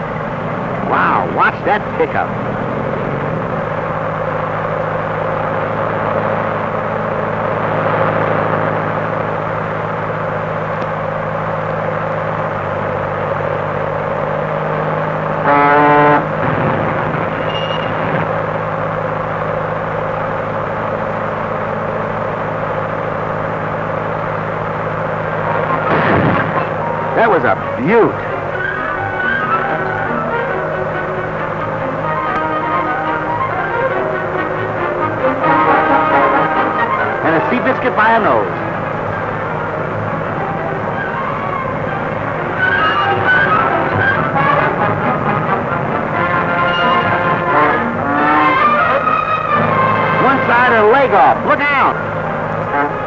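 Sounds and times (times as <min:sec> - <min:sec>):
car engine running: 0:00.0 - 0:53.0
car horn honking: 0:15.4 - 0:18.4, 0:25.4 - 0:53.0.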